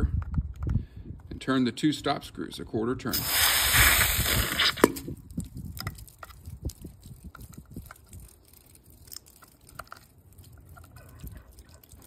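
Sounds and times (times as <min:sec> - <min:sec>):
water dripping: 0:05.2 - 0:12.0.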